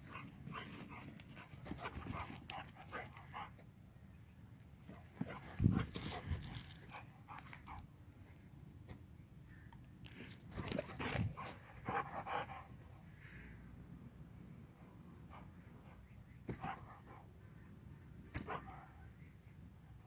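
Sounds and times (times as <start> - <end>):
dog panting: 11.4 - 12.8.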